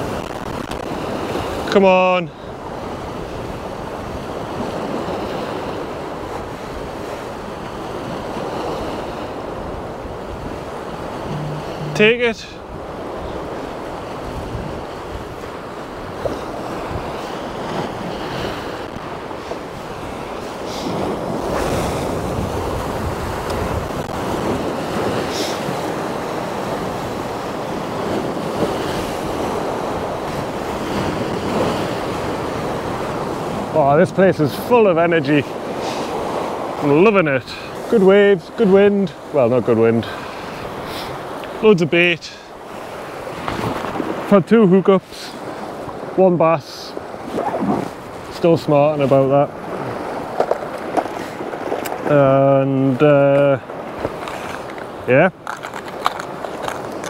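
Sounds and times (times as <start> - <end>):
waves breaking against rocks: 0.0 - 57.0
wind buffeting microphone: 2.6 - 33.8.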